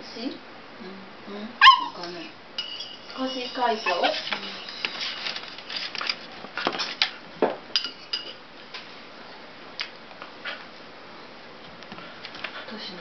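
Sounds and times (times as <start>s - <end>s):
cutlery clinking against dishes: 2.6s - 4.9s, 7.8s - 8.4s.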